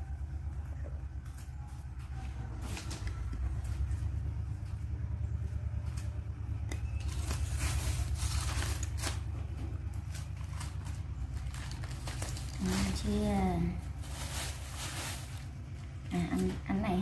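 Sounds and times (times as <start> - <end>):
lettuce and plastic bag rustling: 1.2 - 4.7, 5.6 - 17.0.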